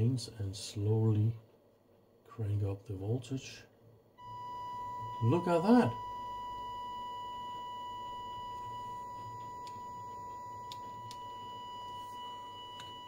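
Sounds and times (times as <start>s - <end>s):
steady test tone: 4.2s - 13.0s.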